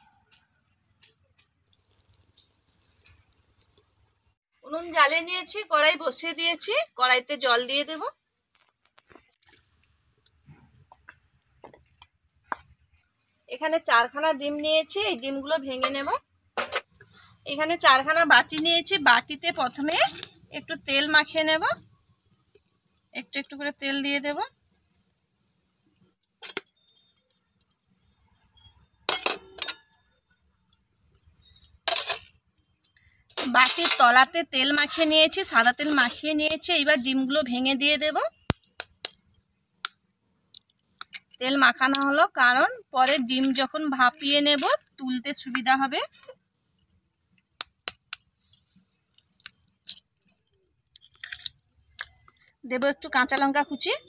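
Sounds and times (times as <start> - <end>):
eggshell crackling: 1.4 - 4.4, 38.3 - 53.8
metal bowls clinking: 28.5 - 30.1, 33.3 - 36.3.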